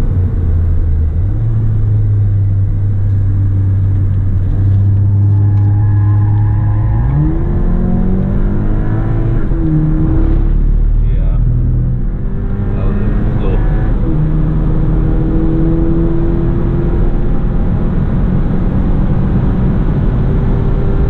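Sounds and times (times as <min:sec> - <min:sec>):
car engine accelerating: 0:00.0 - 0:21.0.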